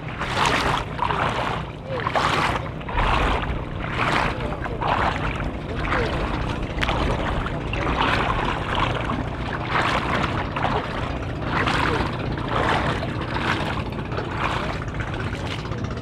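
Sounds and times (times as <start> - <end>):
footsteps splashing through water: 0.0 - 16.0
steady low rumble: 0.0 - 16.0.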